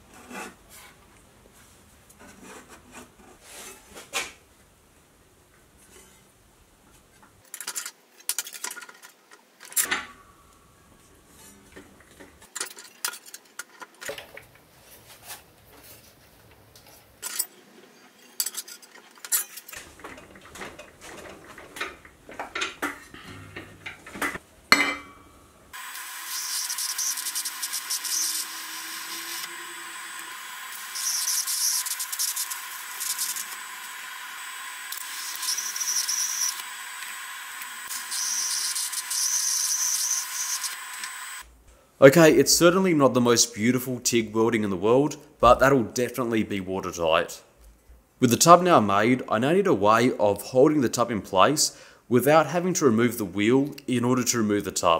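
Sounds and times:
sheet metal clinks and knocks: 0:18.3 - 0:25.3
welding arc hiss and buzz: 0:25.8 - 0:41.5.

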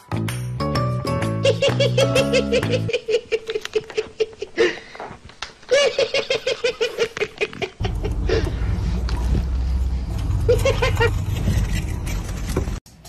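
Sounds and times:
person laughing: 0:01.4 - 0:08.8, 0:10.4 - 0:11.3.

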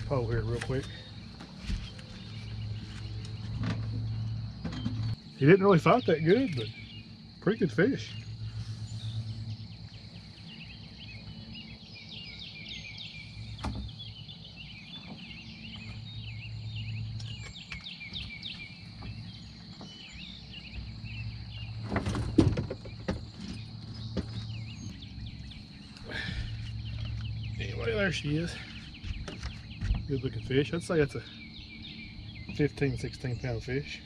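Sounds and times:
bird chirps: 0:00.0 - 0:34.0
insect drone: 0:00.0 - 0:34.0
loud knocks and thumps: 0:21.8 - 0:25.0.

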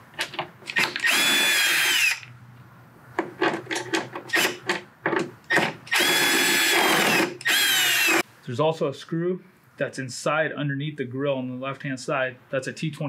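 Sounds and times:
electric screwdriver whine: 0:00.8 - 0:02.3, 0:05.9 - 0:08.2.

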